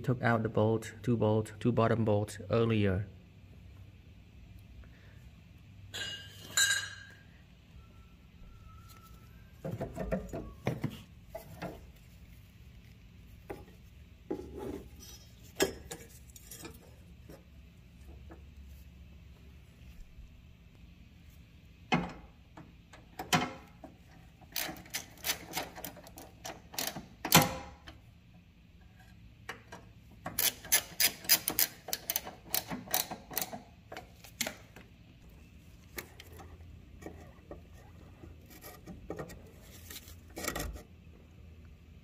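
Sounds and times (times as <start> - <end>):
ratchet wrench clicking: 30.3 - 33.6.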